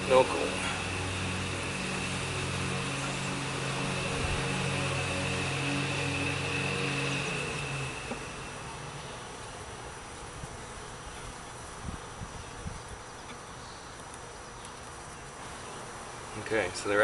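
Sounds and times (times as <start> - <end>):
low hum: 0.0 - 13.8
honeybees buzzing: 0.0 - 17.0.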